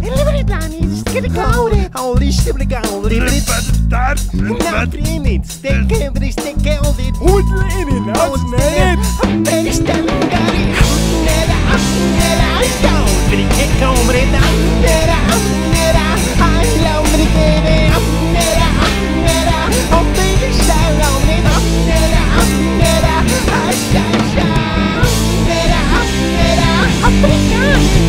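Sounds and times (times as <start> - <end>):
drums steady beat: 0.0 - 28.0
rock band playing: 0.0 - 28.0
lead melody bending pitch: 6.8 - 10.4.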